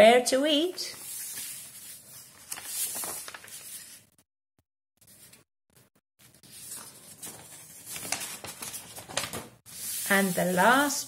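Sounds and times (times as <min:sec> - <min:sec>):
paper sheets rustling: 0:00.9 - 0:04.1, 0:06.2 - 0:11.0.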